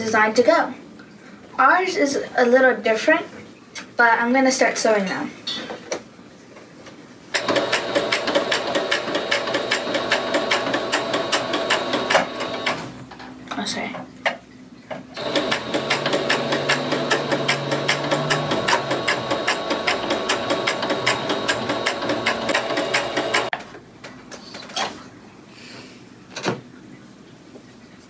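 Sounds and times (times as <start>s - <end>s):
sewing machine stitching: 7.4s - 12.9s, 15.2s - 23.5s.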